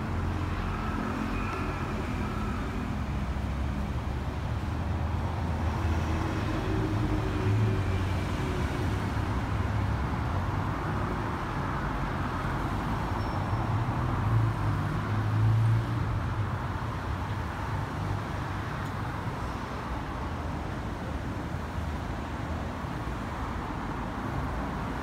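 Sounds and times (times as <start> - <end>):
road traffic engines humming: 0.0 - 25.0.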